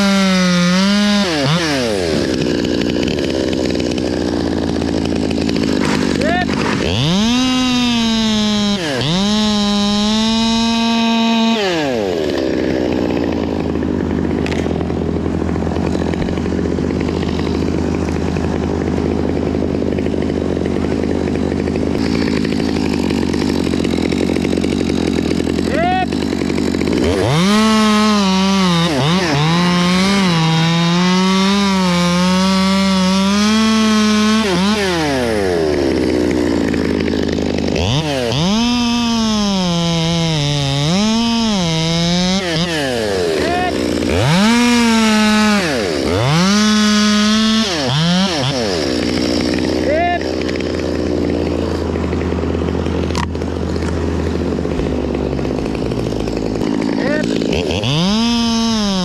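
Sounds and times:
chainsaw cutting wood: 0.0s - 59.0s
chainsaw idling: 0.0s - 59.0s.

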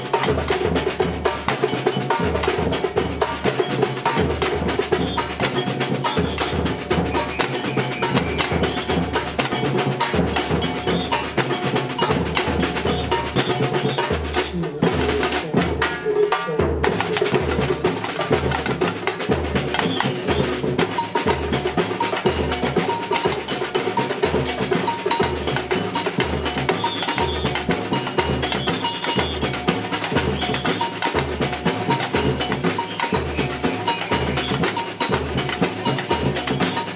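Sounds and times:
fast drum strokes: 0.0s - 36.9s
snare and hand percussion: 0.0s - 36.9s
bass drums beating: 4.2s - 15.9s, 16.7s - 36.9s
bell ringing: 20.8s - 36.9s.

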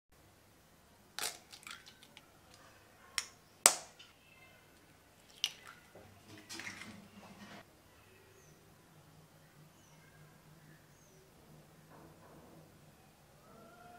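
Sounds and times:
eggs cracking on metal bowl: 1.1s - 4.2s, 4.8s - 7.1s.

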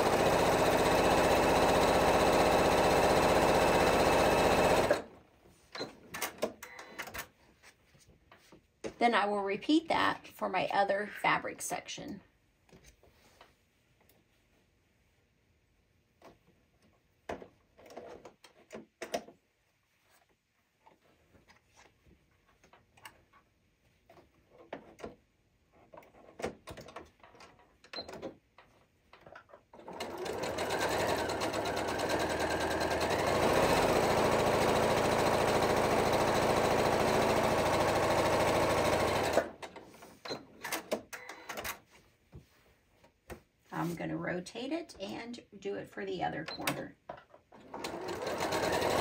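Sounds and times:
electric sewing machine running: 0.0s - 5.1s, 29.8s - 39.6s, 47.7s - 49.0s.

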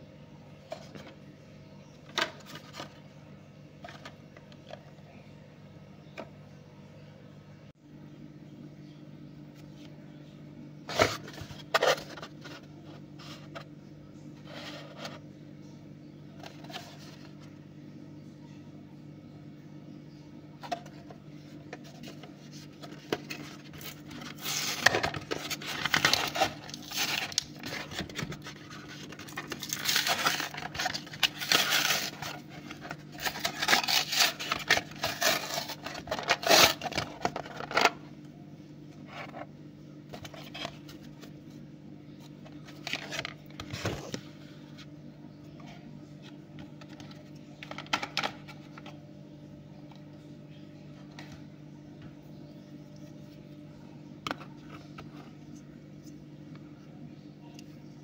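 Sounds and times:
plastic crinkling and card tearing: 21.9s - 37.9s.

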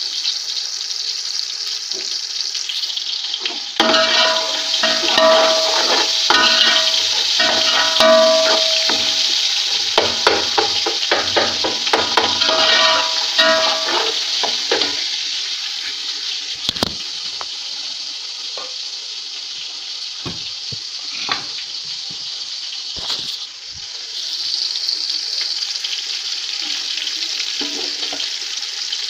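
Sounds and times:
vegetables sizzling in a pot: 0.0s - 29.0s
ladle knocking against pot: 3.8s - 15.0s.

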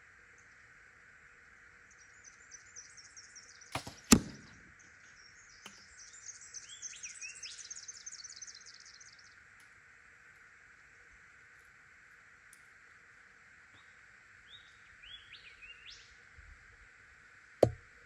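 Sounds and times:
birds chirping and trilling: 1.9s - 9.3s
bow release snap: 3.8s - 4.6s
arrow striking target: 3.8s - 4.7s.

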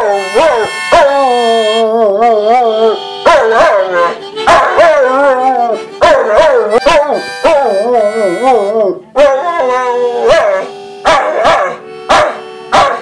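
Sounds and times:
dog howling: 0.0s - 13.0s
harmonica held notes: 0.0s - 13.0s.

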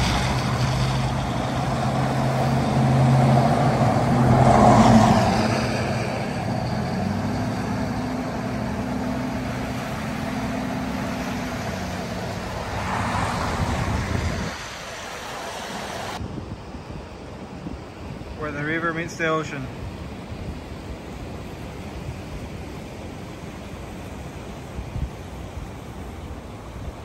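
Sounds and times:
car engines running: 0.0s - 16.2s
tyres hissing on wet pavement: 0.0s - 16.2s.

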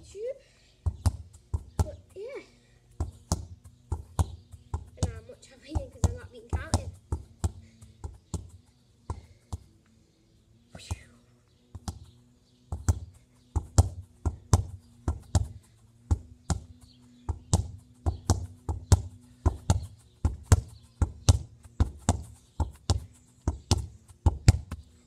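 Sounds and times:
football thudding against brick wall: 3.0s - 8.5s, 12.7s - 24.8s.

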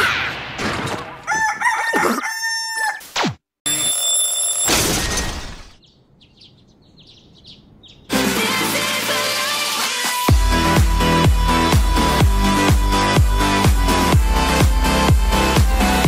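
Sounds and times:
electronic dance music: 8.1s - 16.0s.

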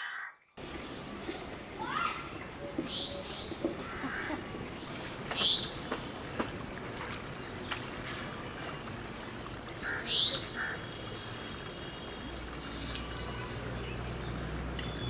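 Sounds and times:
bird calling: 9.8s - 10.9s.

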